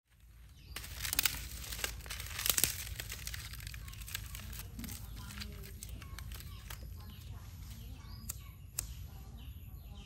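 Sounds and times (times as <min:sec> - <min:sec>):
crinkling handling noise: 0:00.1 - 0:08.0.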